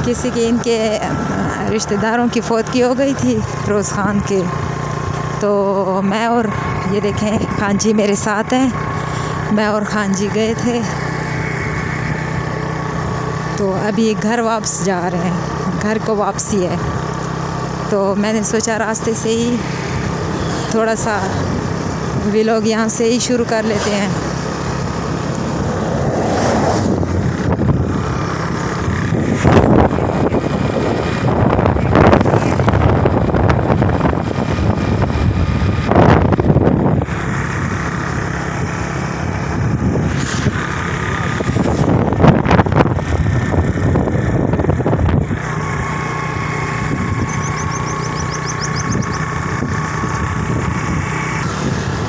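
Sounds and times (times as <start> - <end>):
motorcycle engine running: 0.0 - 52.0
wind rushing over microphone: 19.3 - 52.0.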